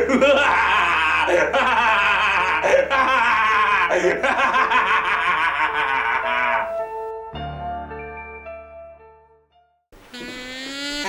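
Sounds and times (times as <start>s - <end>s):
man laughing loudly: 0.0s - 6.7s.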